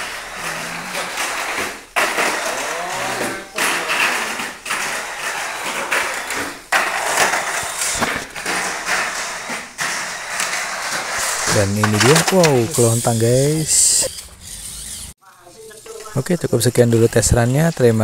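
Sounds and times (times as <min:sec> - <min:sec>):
toy car running on plastic track: 0:00.0 - 0:18.0.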